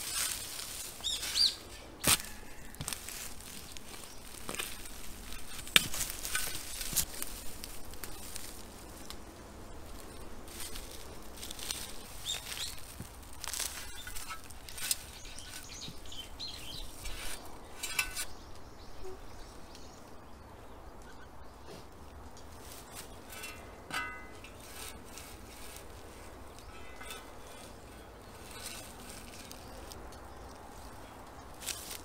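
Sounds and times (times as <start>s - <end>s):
shovel digging into soil: 0.0s - 8.8s, 10.0s - 18.4s, 22.7s - 30.0s, 31.6s - 32.0s.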